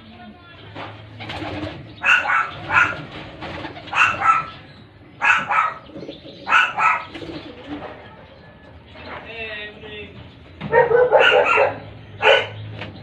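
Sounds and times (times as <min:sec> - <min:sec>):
pigeons cooing: 0:01.2 - 0:09.2, 0:10.5 - 0:13.0
dog barking: 0:02.0 - 0:03.1, 0:03.9 - 0:04.6, 0:05.2 - 0:05.8, 0:06.5 - 0:07.1, 0:10.7 - 0:12.6.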